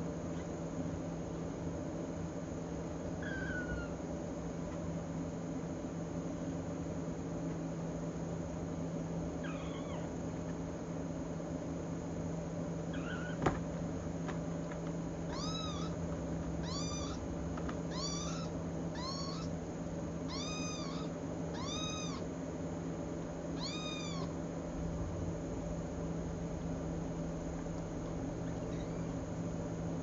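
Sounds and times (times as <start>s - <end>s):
steady low hum: 0.0s - 30.0s
kitten mewing: 3.2s - 4.0s, 9.4s - 10.6s, 12.9s - 13.5s, 15.2s - 16.0s, 16.6s - 19.6s, 20.2s - 22.3s, 23.6s - 24.4s, 28.4s - 29.2s.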